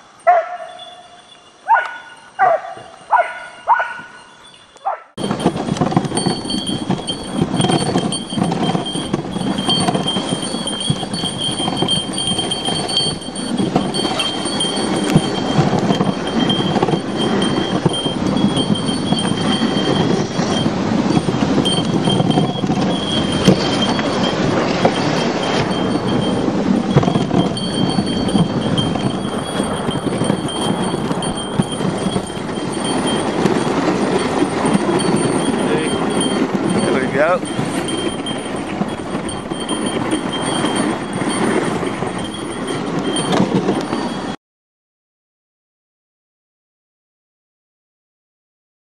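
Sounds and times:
sled runners scraping on icy snow: 0:00.0 - 0:44.4
thin high ringing: 0:00.0 - 0:44.4.

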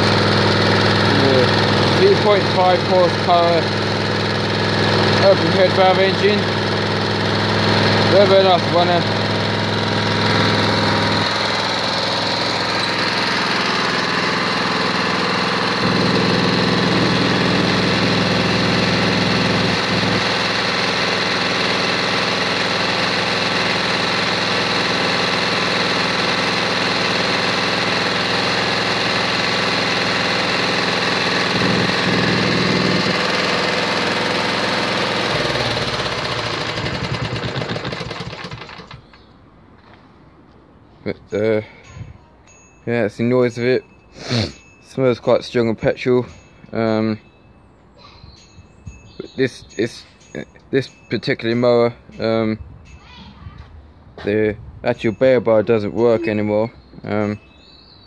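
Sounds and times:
lawnmower engine idling: 0:00.0 - 0:40.0.

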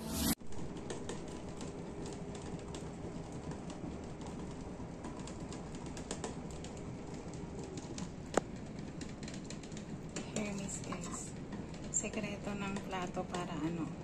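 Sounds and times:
water boiling and bubbling: 0:00.6 - 0:14.0.

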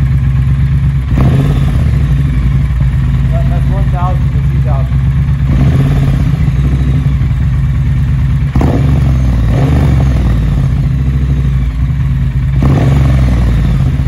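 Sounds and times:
motorcycle engine idling: 0:00.0 - 0:14.0.

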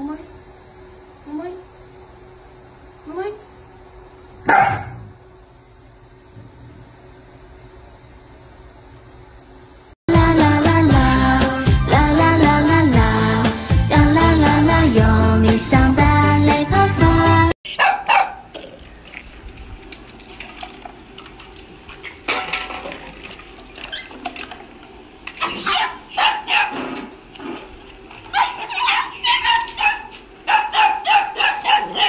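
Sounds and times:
small dog yapping: 0:04.5 - 0:05.1, 0:17.7 - 0:18.4, 0:25.4 - 0:27.1, 0:28.3 - 0:32.0.

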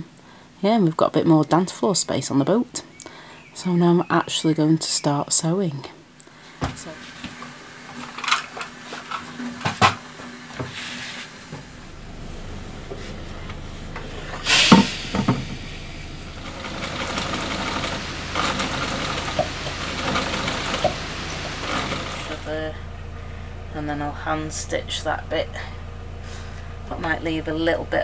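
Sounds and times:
low steady hum: 0:10.2 - 0:28.0
steam iron hiss: 0:10.6 - 0:22.5
electric sewing machine running: 0:11.5 - 0:22.7.

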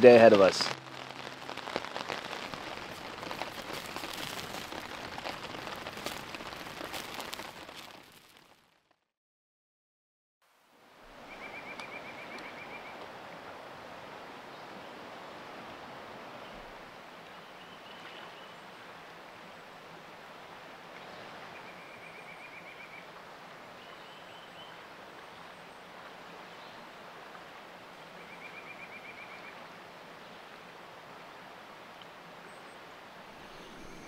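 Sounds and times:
river flowing: 0:00.0 - 0:08.6, 0:10.5 - 0:34.0.

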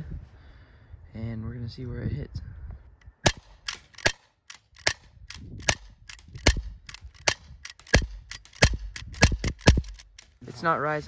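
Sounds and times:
airsoft pistol shots cracking: 0:03.2 - 0:05.0, 0:05.6 - 0:10.0.

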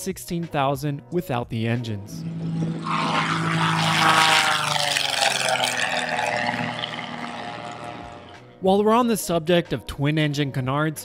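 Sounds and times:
propeller aircraft passing low: 0:02.1 - 0:08.6.

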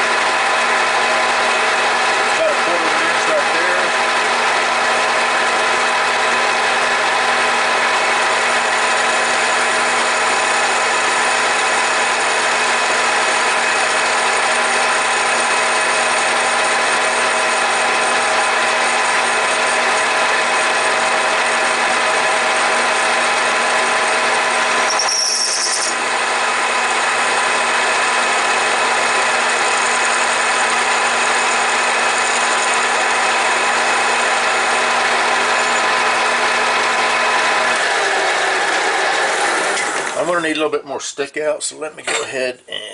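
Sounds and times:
lathe whine: 0:00.0 - 0:40.3
tool cutting metal: 0:01.3 - 0:07.0, 0:07.8 - 0:40.3
high-pitched squeal: 0:24.8 - 0:26.0.

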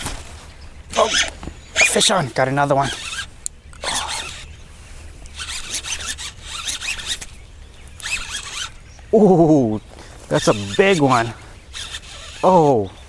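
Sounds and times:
fishing reel rasping: 0:00.9 - 0:04.6, 0:05.2 - 0:07.4, 0:08.0 - 0:08.8, 0:10.3 - 0:12.7.

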